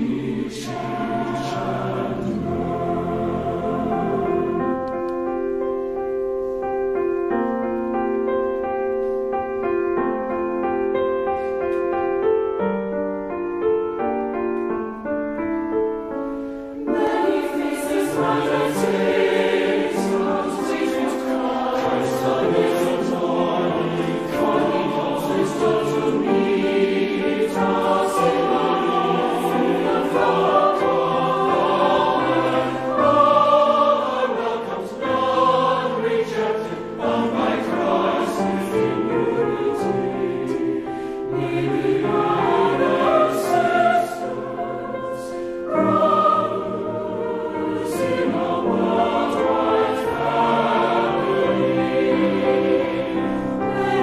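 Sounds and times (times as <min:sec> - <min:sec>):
mixed choir singing: 0:00.0 - 0:05.5, 0:16.7 - 0:54.0
grand piano playing: 0:00.0 - 0:54.0.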